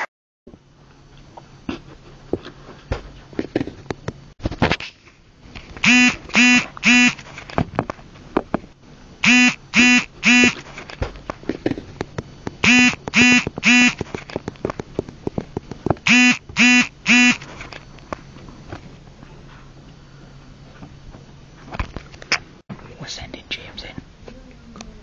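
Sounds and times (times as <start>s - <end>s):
buzzy electronic beeps: 5.8s - 7.2s, 9.2s - 10.6s, 12.6s - 14.0s, 16.1s - 17.4s.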